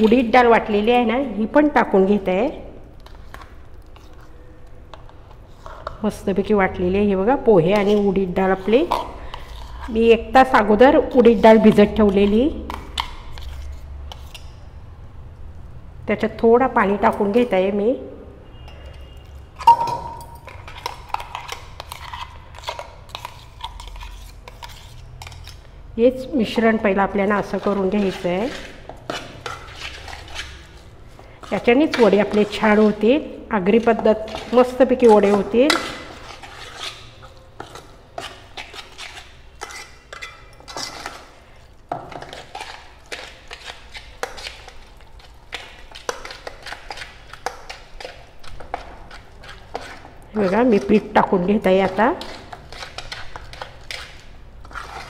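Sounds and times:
spoon scraping metal bowl: 3.0 - 6.5, 7.1 - 14.7, 18.5 - 55.0
spoon clinking in steel tumbler: 19.6 - 20.8
wet batter slapping: 42.0 - 55.0.

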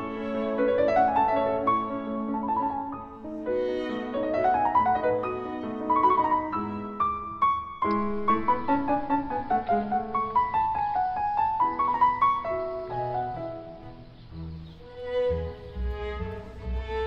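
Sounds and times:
instrumental music: 0.0 - 17.0.

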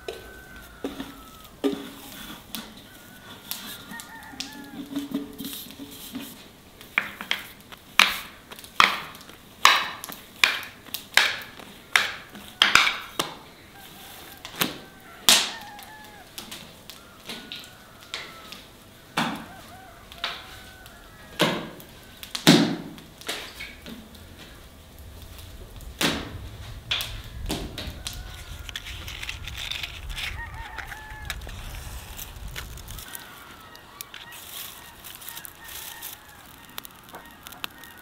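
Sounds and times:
faint birds calling: 0.0 - 4.3, 11.5 - 22.4, 23.0 - 38.0.

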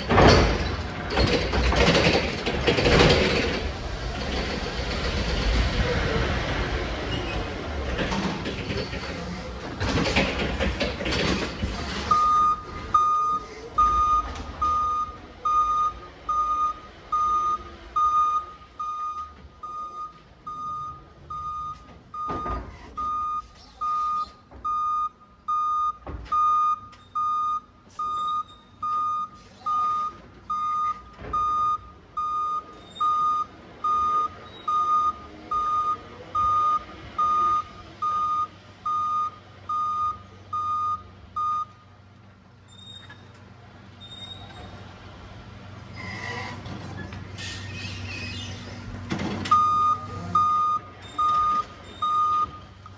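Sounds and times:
forklift backup alarm beeping: 6.4 - 8.0, 12.0 - 41.9, 49.4 - 52.9.

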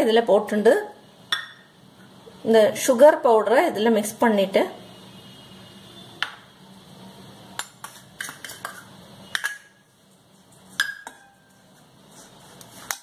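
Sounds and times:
metal spoon clinking steel bowl: 7.6 - 9.8, 10.8 - 11.5.

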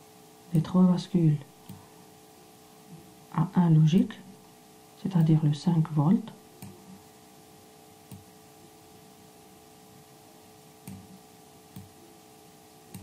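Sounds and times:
faint electrical hum: 0.0 - 13.0
computer mouse clicks: 8.1 - 8.3, 10.8 - 11.1.

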